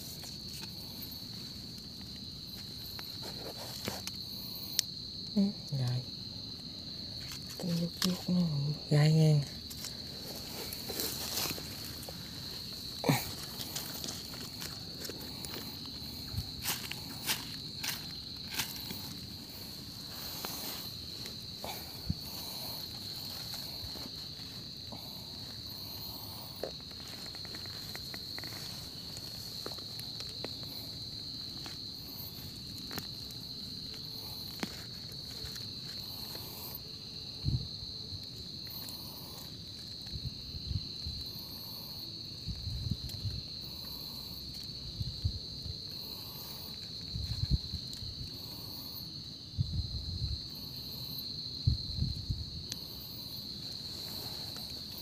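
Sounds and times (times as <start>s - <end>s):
hands working in soil: 0.0s - 5.0s, 6.8s - 37.4s, 52.6s - 55.0s
cricket trill: 0.0s - 55.0s.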